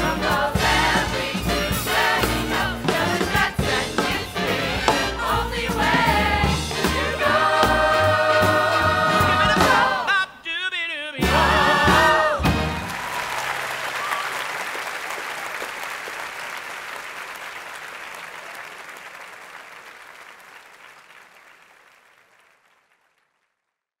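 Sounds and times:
audience applauding: 12.4 - 23.7.

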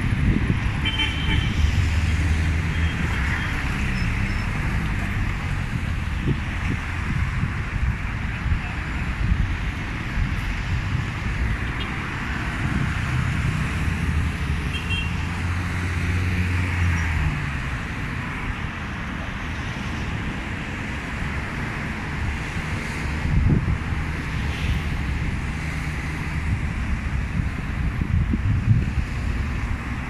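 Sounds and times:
passing road vehicles: 0.0 - 30.0
vehicle engine low rumble: 23.2 - 29.8.

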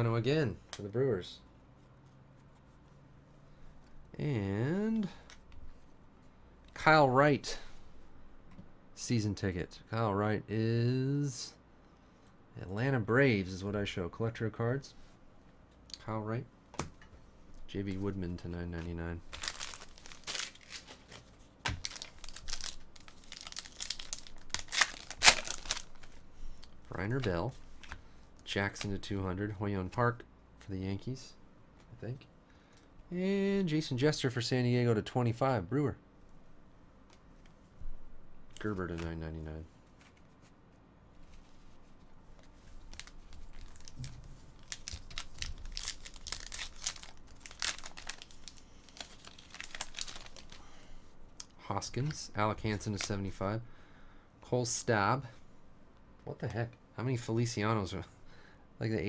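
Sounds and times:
foil wrapper crinkling: 19.3 - 26.2, 42.6 - 50.8.

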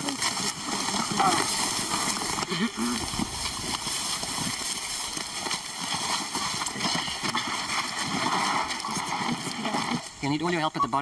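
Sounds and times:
footsteps shuffling through dry grass: 0.6 - 5.9.

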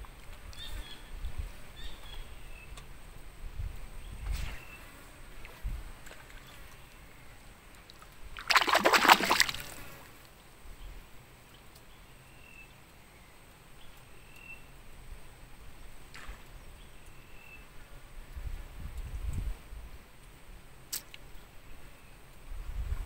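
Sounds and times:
water splash beside boat: 7.9 - 10.1.

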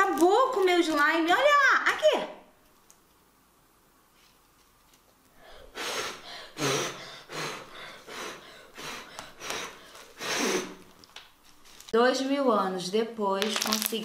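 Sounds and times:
person gasping loudly: 5.4 - 10.9.

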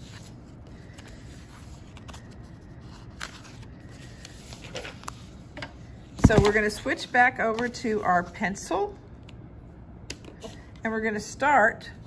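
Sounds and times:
paper rustling: 0.0 - 5.4.

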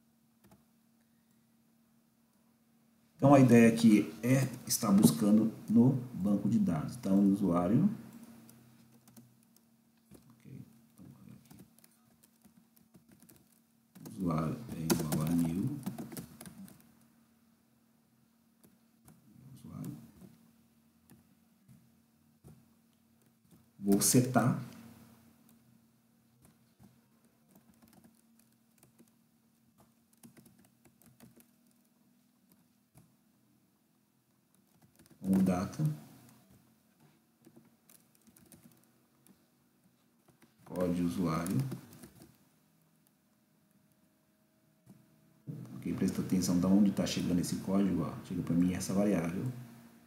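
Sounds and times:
faint steady hum: 0.0 - 50.0
keyboard typing: 8.1 - 10.4, 11.3 - 17.0, 26.4 - 29.2, 29.8 - 33.1, 34.5 - 36.7, 37.4 - 39.4, 40.2 - 42.4.

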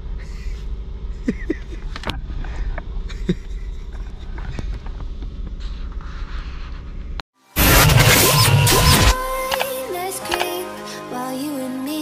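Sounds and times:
car engine humming: 0.0 - 6.3
sharp clicks: 8.0 - 10.6.

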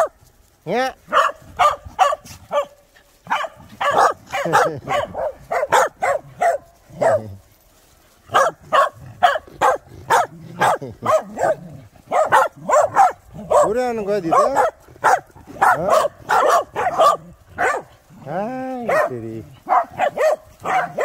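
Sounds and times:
dogs barking and yipping: 0.0 - 0.4, 1.0 - 21.0.

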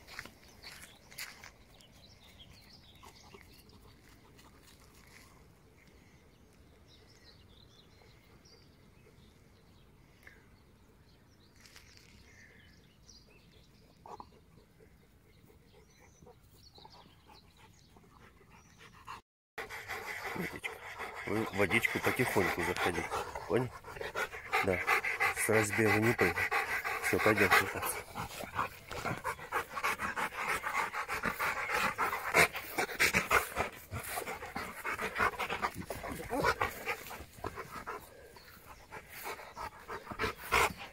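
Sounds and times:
dog panting: 13.8 - 40.9.

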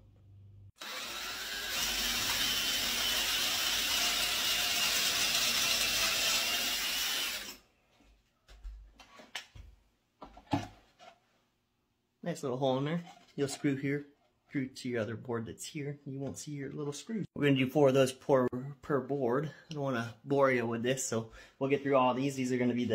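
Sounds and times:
cordless drill boring wood: 0.8 - 7.6.

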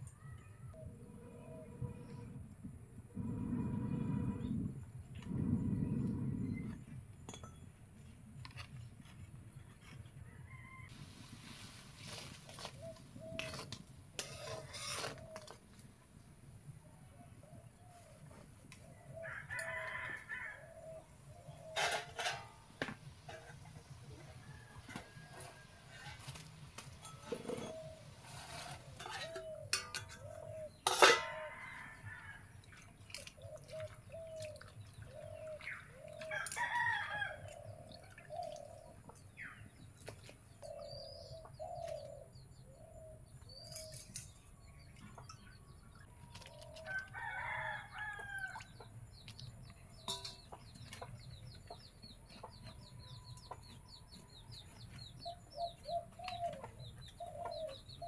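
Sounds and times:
small birds chirping: 32.6 - 58.0
rooster crowing: 46.9 - 48.6
chickens clucking: 48.2 - 58.0.

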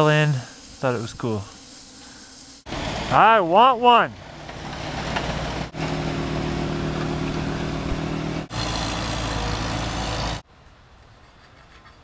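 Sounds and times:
rough rushing machine noise: 2.6 - 3.5, 4.2 - 10.4
loader diesel engine droning: 2.7 - 10.4.

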